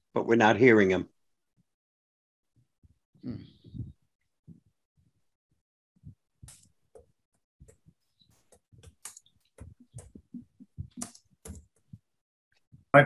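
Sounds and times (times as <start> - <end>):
faint irregular clicks and knocks: 6.4 - 12.1.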